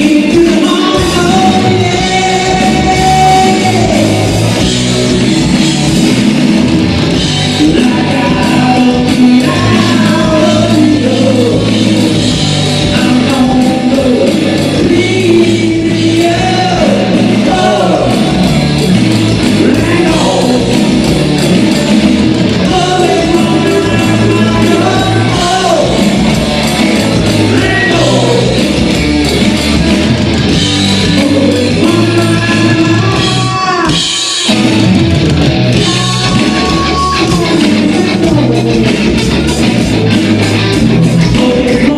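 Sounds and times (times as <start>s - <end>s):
man singing: 0.0s - 4.7s, 7.5s - 18.6s, 19.5s - 21.7s, 22.6s - 28.8s, 31.0s - 34.2s, 35.7s - 39.7s, 40.8s - 41.9s
live rock band playing: 0.0s - 41.9s.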